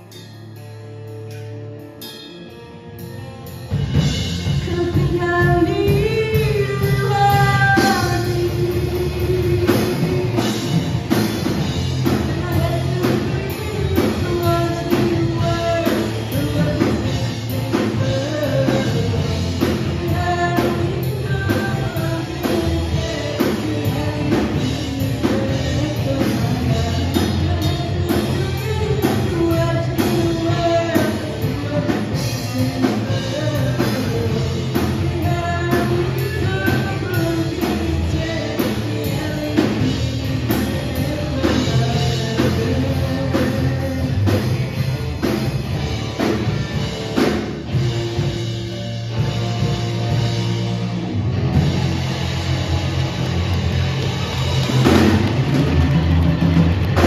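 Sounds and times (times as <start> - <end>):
drum kit: 0.0 - 57.0
electric guitars: 0.0 - 57.0
person singing: 4.4 - 45.4.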